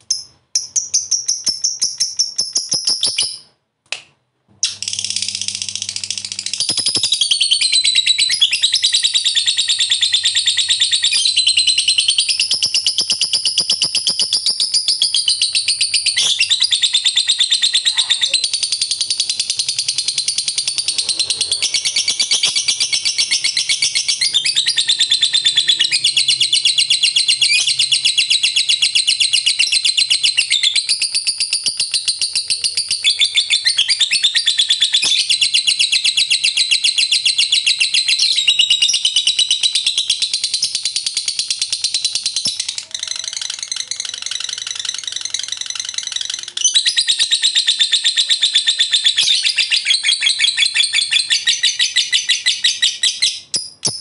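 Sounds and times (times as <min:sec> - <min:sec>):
bird chattering trill: 0:04.6 - 0:35.6.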